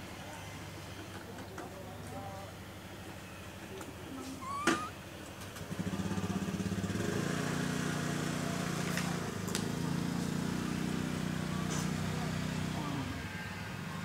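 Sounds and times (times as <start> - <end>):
short high squeak: 4.2 - 5.0
small engine running: 5.6 - 14.0.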